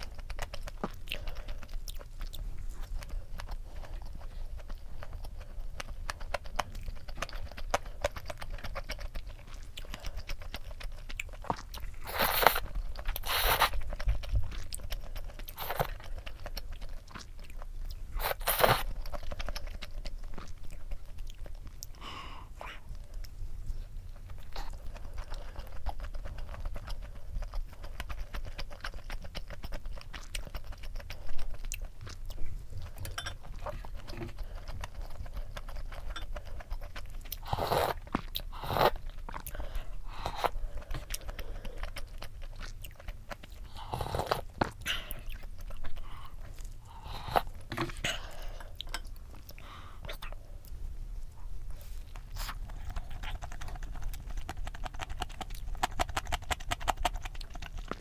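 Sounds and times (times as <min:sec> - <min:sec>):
chewing noodles: 0:00.0 - 0:58.0.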